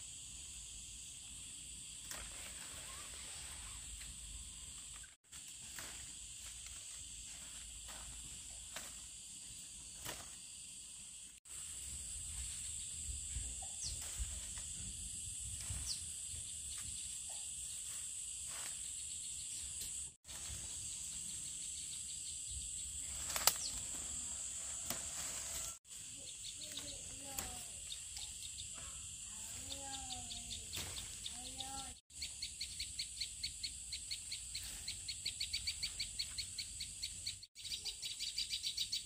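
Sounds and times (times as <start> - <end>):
insects droning: 0.0 - 39.0
bird chirps: 27.8 - 29.1, 29.7 - 39.0.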